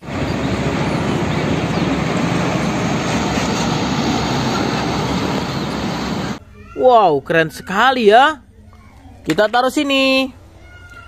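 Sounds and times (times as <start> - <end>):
truck driving by: 0.0 - 6.4.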